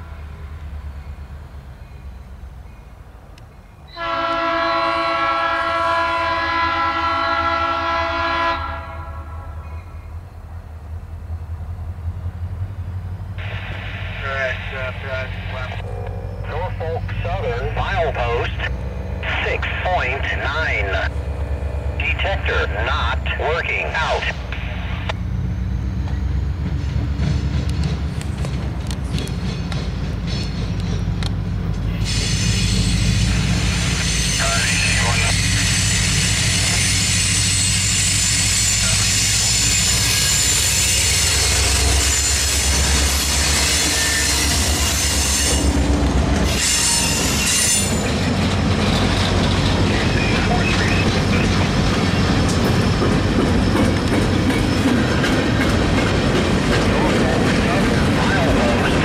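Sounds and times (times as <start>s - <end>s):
diesel locomotives rumbling: 0.0s - 59.0s
locomotive horn blast: 3.9s - 9.7s.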